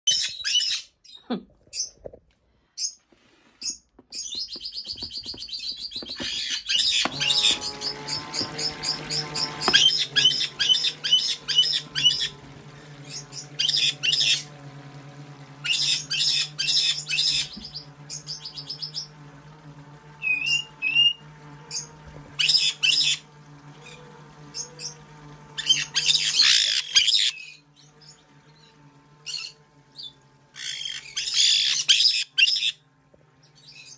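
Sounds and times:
parrots chirping: 0:00.1 - 0:02.0, 0:03.6 - 0:12.4, 0:25.6 - 0:32.8
small electric pump humming: 0:03.2 - 0:33.9
water running into tub: 0:04.4 - 0:27.0.

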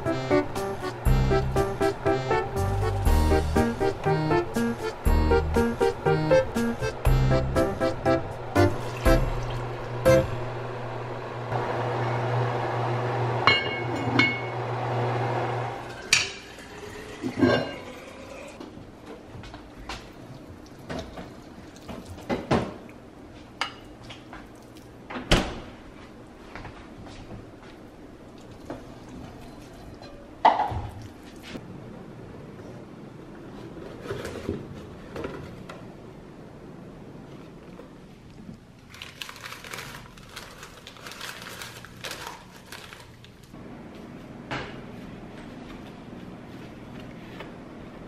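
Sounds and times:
paper liner crinkling: 0:38.8 - 0:43.5.

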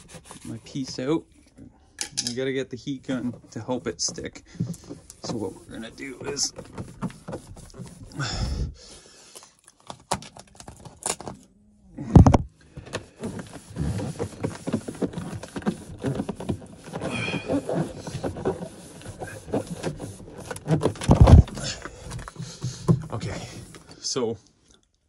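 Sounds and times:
heavy thumps: 0:12.0 - 0:12.5, 0:20.9 - 0:23.6.

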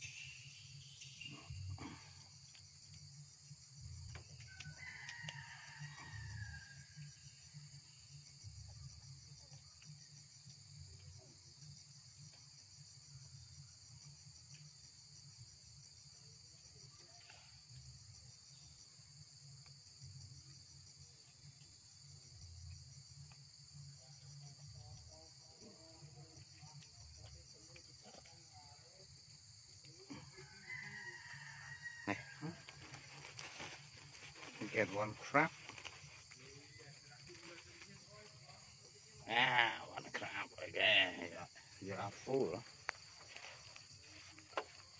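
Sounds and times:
insect chorus trilling: 0:00.0 - 0:44.9.

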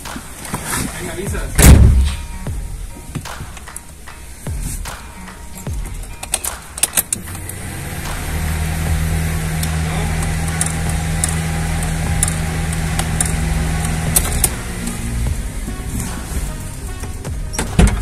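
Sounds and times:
motor humming: 0:07.2 - 0:16.0.

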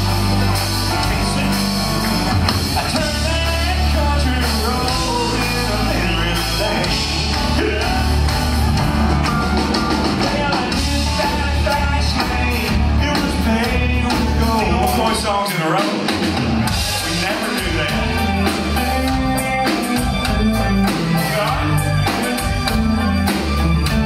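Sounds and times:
live band playing: 0:00.0 - 0:24.0
man singing: 0:00.9 - 0:08.3, 0:10.0 - 0:16.2, 0:16.8 - 0:20.0.

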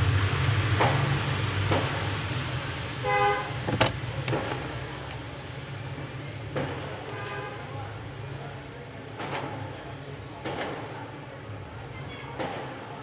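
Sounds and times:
short horn-like honk: 0:03.0 - 0:03.6.

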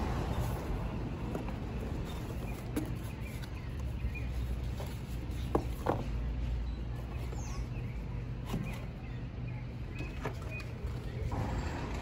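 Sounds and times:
cardboard rustling and knocking: 0:04.7 - 0:06.2.

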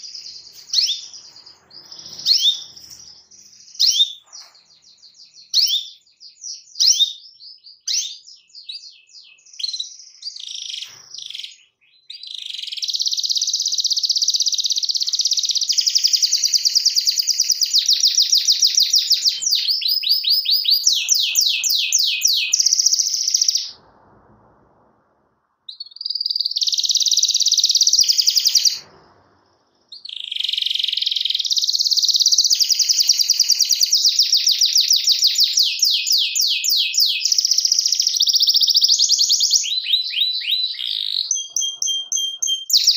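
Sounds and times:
canary singing trills: 0:00.0 - 0:23.8, 0:25.7 - 0:28.8, 0:29.8 - 0:42.9.

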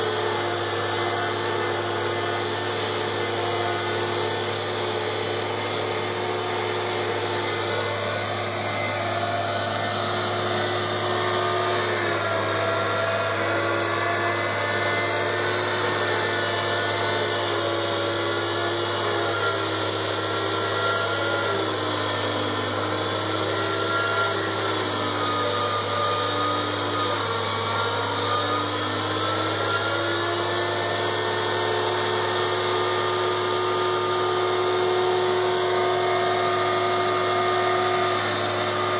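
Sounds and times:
tractor engine hum: 0:00.0 - 0:17.3
forage mill grinding: 0:00.0 - 0:38.9.

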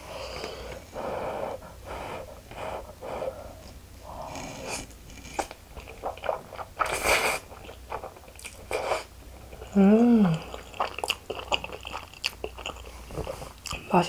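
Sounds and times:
person chewing noodles: 0:03.6 - 0:13.8
person slurping noodles: 0:04.2 - 0:08.1.

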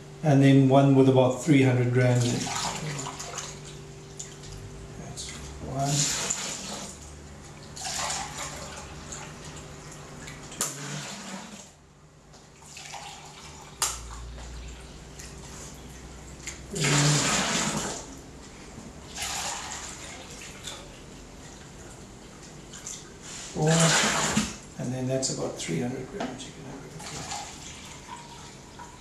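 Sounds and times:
water pouring into a container: 0:07.7 - 0:09.6, 0:12.6 - 0:13.8, 0:16.7 - 0:18.1.

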